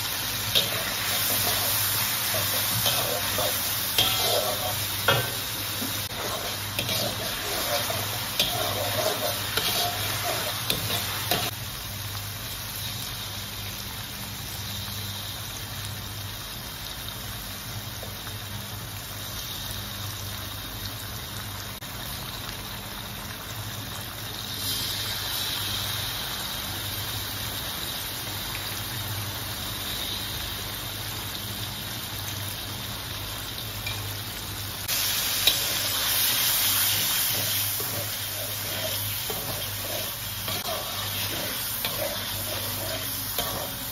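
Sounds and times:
aromatics sizzling in hot oil: 0.0 - 43.9
metal spatula scraping a wok: 0.5 - 11.5, 35.4 - 43.9.

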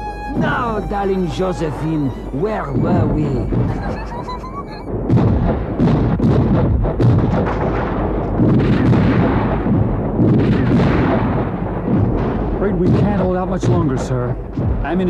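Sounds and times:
deep rumble: 0.0 - 15.0
cannon blasts and explosions: 4.9 - 15.0.

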